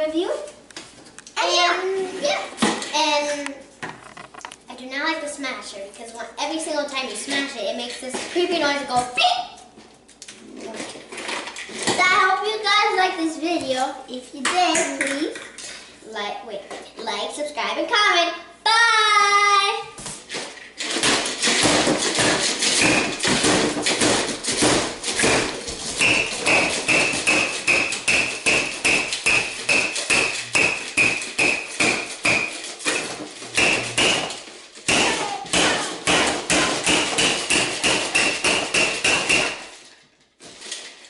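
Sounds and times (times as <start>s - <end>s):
toy hammer blows with squeaks: 26.0s - 34.3s.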